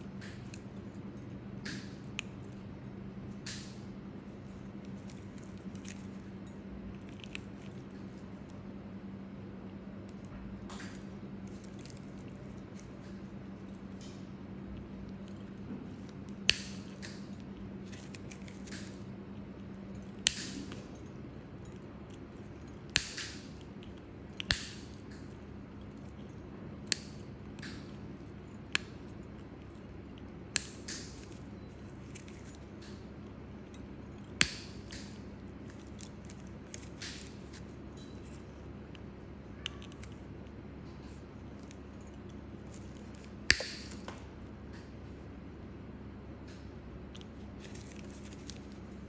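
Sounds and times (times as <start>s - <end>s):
toenail nippers snipping: 15.1s - 19.1s, 19.9s - 33.0s, 33.7s - 39.0s, 41.6s - 44.1s
clicks of nipper jaws: 22.9s - 25.2s.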